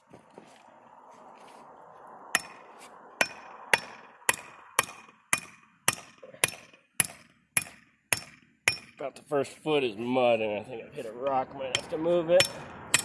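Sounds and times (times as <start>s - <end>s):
hatchet hammering metal stake: 2.4s - 2.6s, 3.2s - 9.1s, 11.7s - 13.0s.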